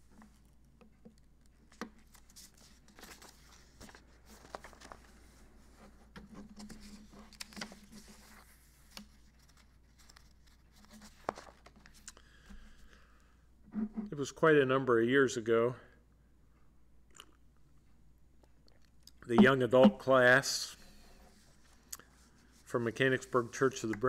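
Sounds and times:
paper rustling: 0:02.0 - 0:12.0.

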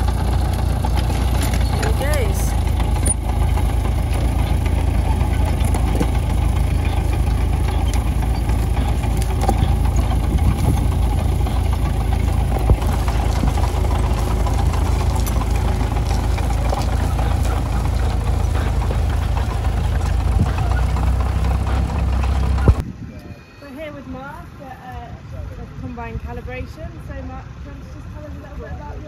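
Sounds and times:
tractor diesel engine running: 0:00.0 - 0:23.0.

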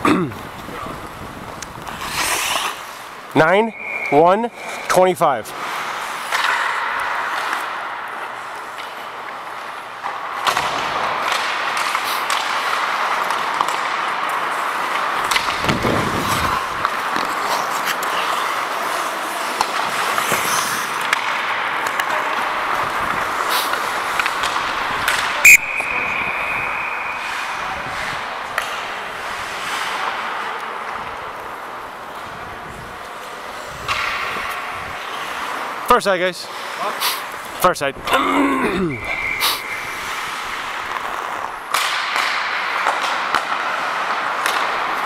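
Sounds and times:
hockey sticks and puck clacking: 0:00.0 - 0:37.6, 0:38.9 - 0:45.0
skate blades scraping ice: 0:00.4 - 0:35.8, 0:38.9 - 0:45.0
referee whistle blast: 0:03.4 - 0:04.9, 0:25.4 - 0:27.4, 0:38.9 - 0:39.9.

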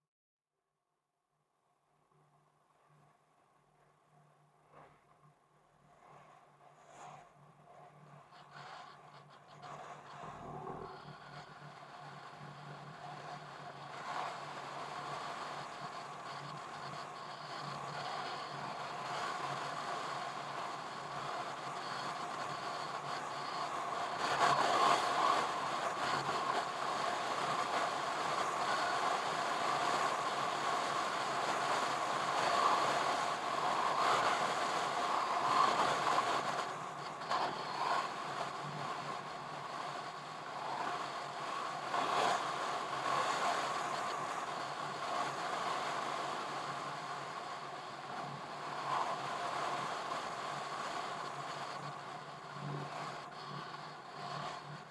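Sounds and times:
car engine and road noise: 0:07.2 - 0:24.4.

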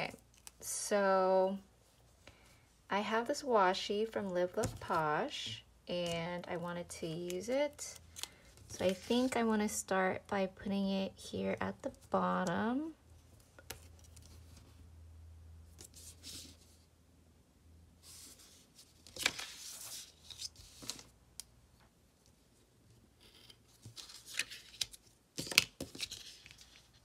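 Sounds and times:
paper rustling and crinkling: 0:18.1 - 0:21.1, 0:23.2 - 0:27.0.

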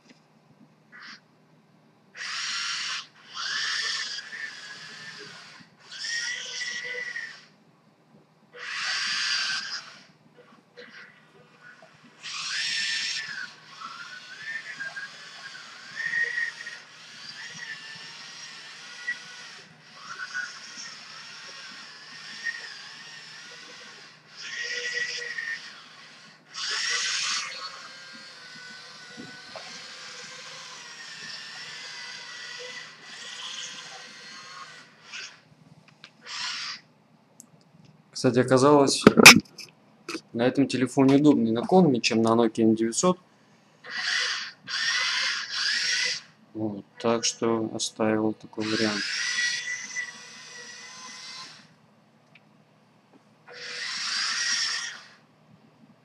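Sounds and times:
small electric motors whining: 0:02.2 - 0:07.6, 0:08.6 - 0:35.5, 0:36.1 - 0:36.9, 0:43.8 - 0:46.4, 0:48.5 - 0:51.8, 0:53.5 - 0:55.3.

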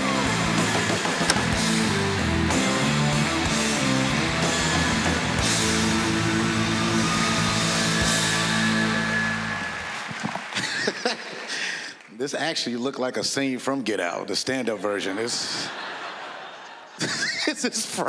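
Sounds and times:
rock music with electric guitar: 0:00.0 - 0:10.2.

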